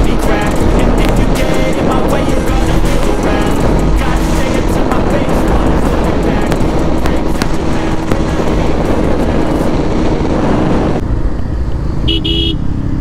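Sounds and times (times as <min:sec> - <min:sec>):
wind and road rush: 0:00.0 - 0:13.0
vehicle horn beeps: 0:12.1 - 0:12.6.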